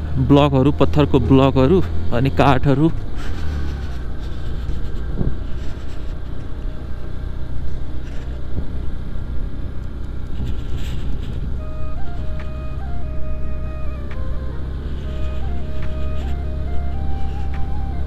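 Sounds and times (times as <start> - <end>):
motorcycle engine running: 0.0 - 18.0
wind rushing over microphone: 3.0 - 7.0, 7.9 - 12.5.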